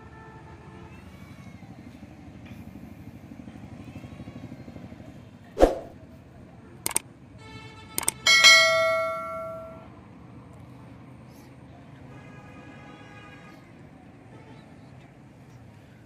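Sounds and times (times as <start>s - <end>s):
whoosh: 5.6s - 6.0s
bell chime: 8.3s - 9.9s.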